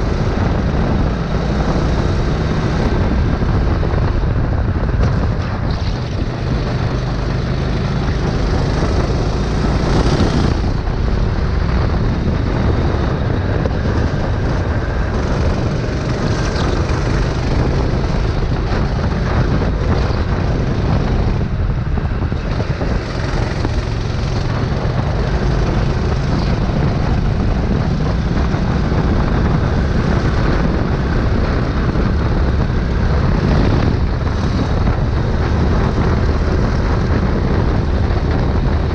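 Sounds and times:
kart engine running at speed: 0.0s - 38.9s
wind noise on microphone: 0.0s - 38.9s.

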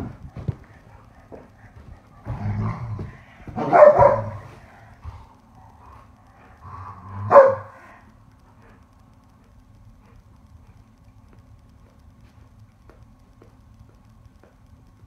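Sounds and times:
dogs growling: 0.0s - 8.9s
dog barking: 3.6s - 4.6s, 7.3s - 7.8s.

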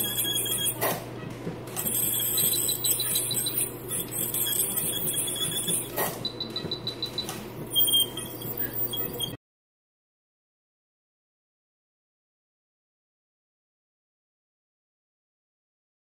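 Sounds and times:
short high beeps: 0.0s - 0.8s, 1.8s - 9.4s.

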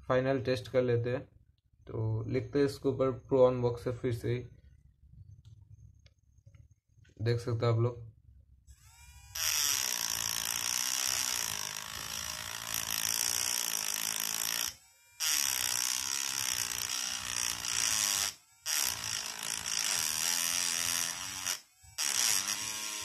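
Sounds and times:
engraving pen buzzing on metal: 8.7s - 23.0s.

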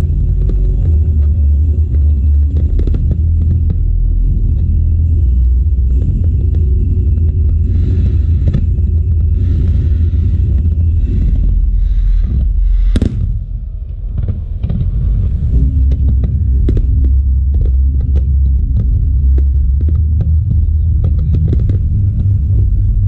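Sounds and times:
crackling firework pops: 1.9s - 3.8s, 12.9s - 13.4s, 14.0s - 22.4s
firework shells booming: 6.1s - 22.2s
sharp firework bang: 12.8s - 13.5s.

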